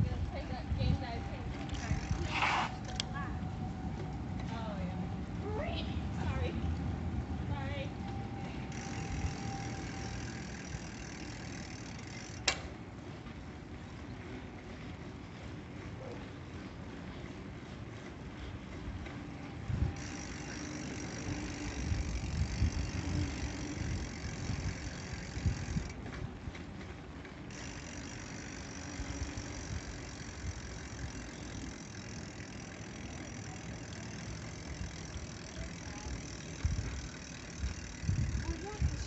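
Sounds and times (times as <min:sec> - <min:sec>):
wind on microphone: 0:00.0 - 0:03.8, 0:21.1 - 0:26.0, 0:36.6 - 0:39.0
bicycle rattling: 0:00.0 - 0:39.0
bicycle tyres rumbling on paving: 0:00.0 - 0:39.0.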